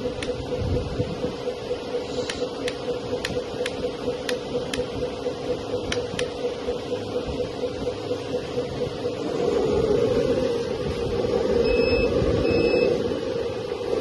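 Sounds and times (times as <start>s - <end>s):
sharp ticks: 0.0s - 9.2s.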